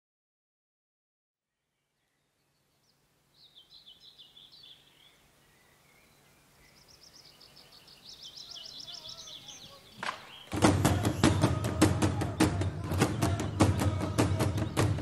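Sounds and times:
songbird warbling: 1.8 - 15.0
rapid high bird notes: 6.9 - 15.0.

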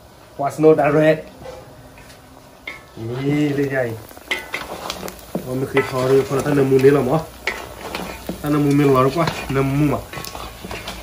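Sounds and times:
meat sizzling in a wok: 0.0 - 11.0
man talking: 3.0 - 4.0, 5.4 - 7.3, 8.4 - 10.1.

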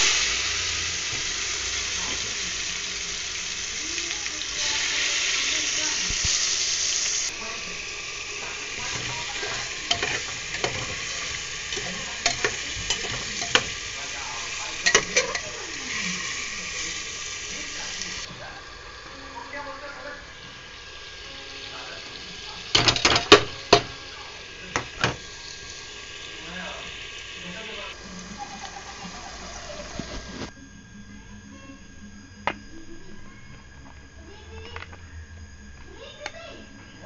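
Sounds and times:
chicken sizzling in hot oil: 0.0 - 30.6
metal spoon scraping a pot: 8.8 - 13.8.

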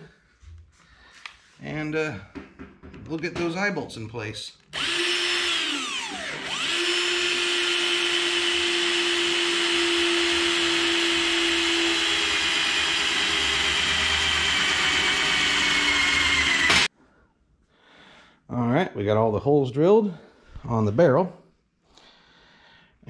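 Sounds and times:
electric drill boring through steel: 4.7 - 16.9.

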